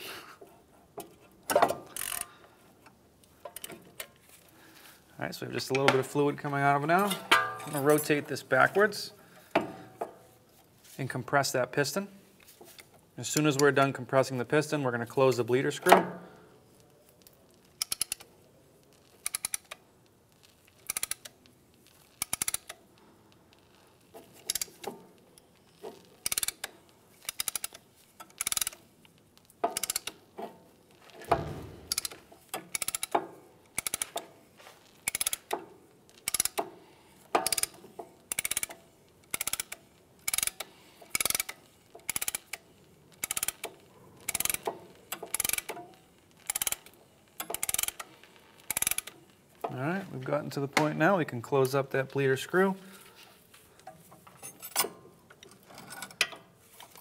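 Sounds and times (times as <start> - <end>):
ratchet tool clicking: 1.9 - 2.3, 17.7 - 18.2, 19.1 - 19.8, 20.8 - 21.3, 22.1 - 22.8, 24.4 - 24.9, 26.2 - 28.8, 29.6 - 30.2, 31.8 - 33.2, 33.8 - 34.2, 35.0 - 35.6, 36.2 - 36.7, 37.3 - 45.8, 46.4 - 48.1, 48.7 - 49.2.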